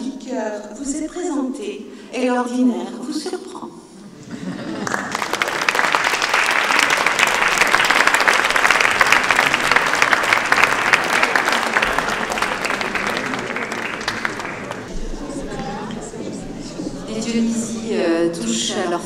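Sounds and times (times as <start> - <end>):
audience applauding: 4.8 - 16.4.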